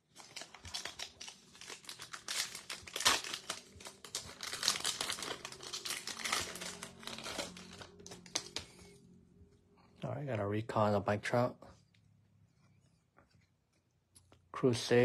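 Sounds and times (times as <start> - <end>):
wrapper crinkling: 0.0 - 8.8.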